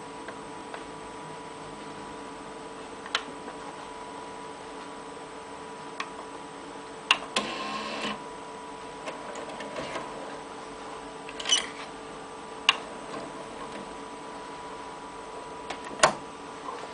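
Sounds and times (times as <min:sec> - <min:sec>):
faint steady hum: 0:00.0 - 0:16.9
cassette mechanism clicks: 0:15.7 - 0:16.2.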